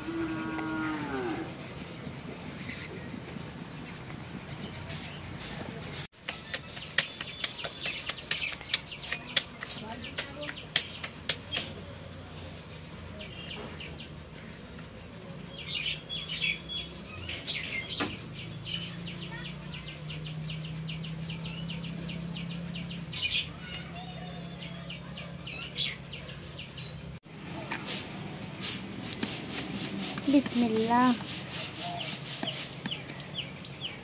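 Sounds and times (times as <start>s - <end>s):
small birds chirping: 0.0s - 27.9s, 28.6s - 34.0s
hands slapping dough: 6.2s - 11.7s.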